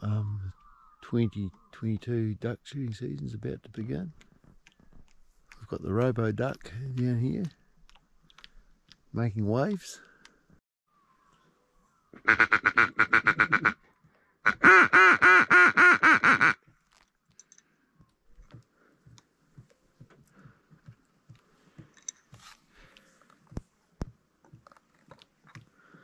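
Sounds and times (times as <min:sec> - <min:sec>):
duck quacking: 0:12.2 - 0:13.8, 0:14.4 - 0:16.6.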